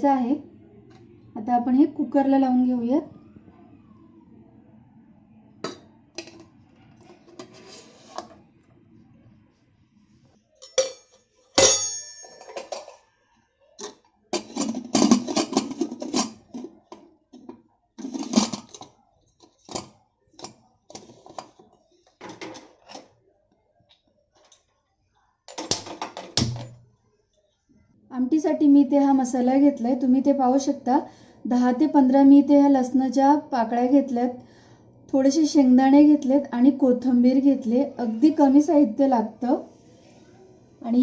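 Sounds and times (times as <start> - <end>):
ringing metal strike: 10.6 - 12.6.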